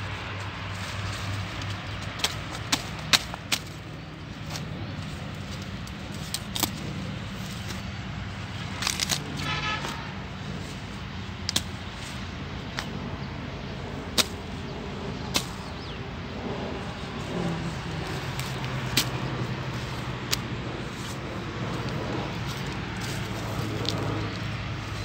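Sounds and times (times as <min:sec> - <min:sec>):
steady low hum: 0:00.0 - 0:25.0
machete chopping stalks: 0:01.3 - 0:07.8, 0:08.6 - 0:10.0, 0:11.4 - 0:13.0, 0:14.1 - 0:16.0, 0:17.3 - 0:21.2.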